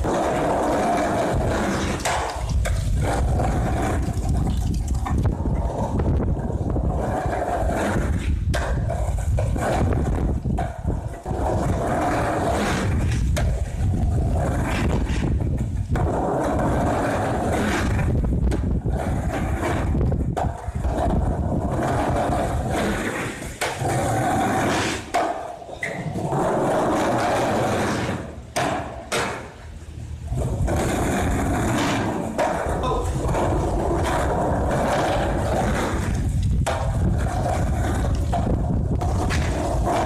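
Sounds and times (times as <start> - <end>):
skateboard clacking on ground: 0.0 - 40.0
skateboard wheels rolling: 0.0 - 40.0.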